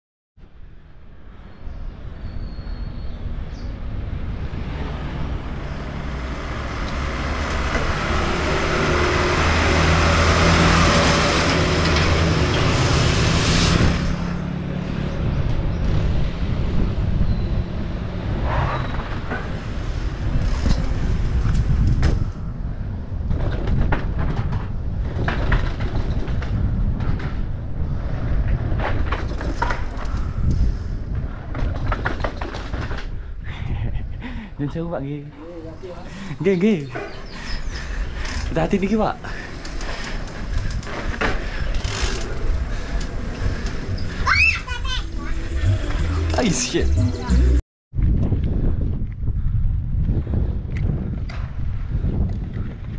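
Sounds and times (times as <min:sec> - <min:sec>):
rushing noise: 0:03.8 - 0:23.1
mountain bike rattling over rough ground: 0:23.2 - 0:27.6, 0:28.5 - 0:30.5, 0:31.2 - 0:33.2
low mechanical drone: 0:45.0 - 0:47.6.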